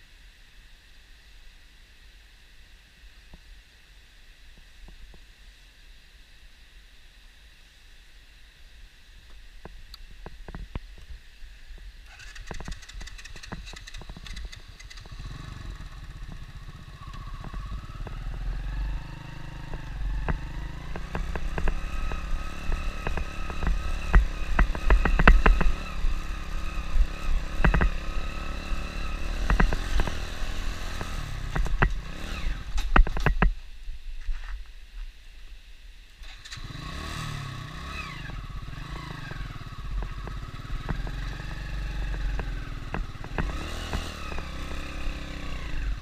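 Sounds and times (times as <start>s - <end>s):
small motorbike engine: 12.0s - 33.5s, 36.2s - 46.0s.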